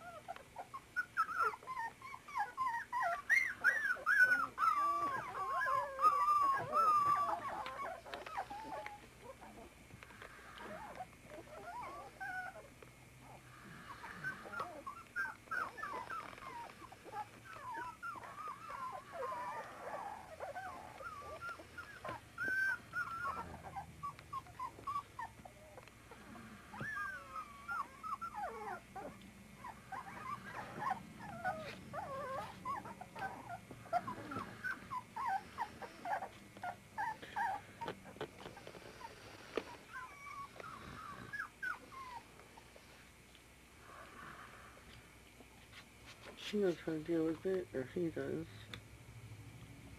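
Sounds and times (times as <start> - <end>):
puppies whimpering and squeaking: 0.0 - 43.0, 45.7 - 48.6.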